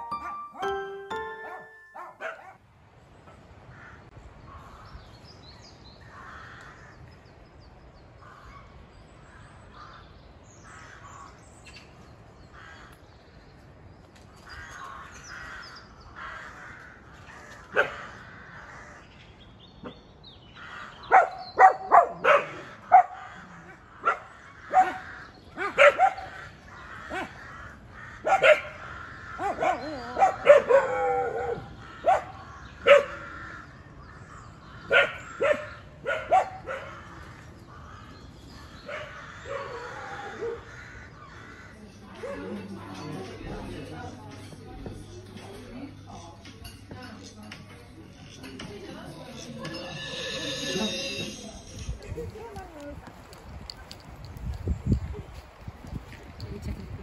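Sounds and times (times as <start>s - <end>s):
dog barking: 1.4s - 2.6s, 17.7s - 18.0s, 21.1s - 23.3s, 24.0s - 25.0s, 25.6s - 26.4s, 27.1s - 27.4s, 28.2s - 28.8s, 29.4s - 33.2s, 34.9s - 37.0s, 38.8s - 40.7s.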